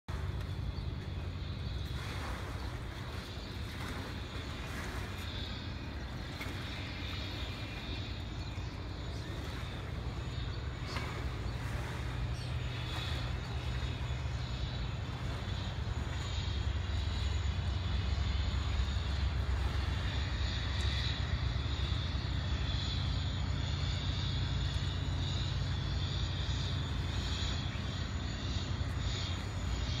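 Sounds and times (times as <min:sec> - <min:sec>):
low engine drone: 0:00.1 - 0:30.0.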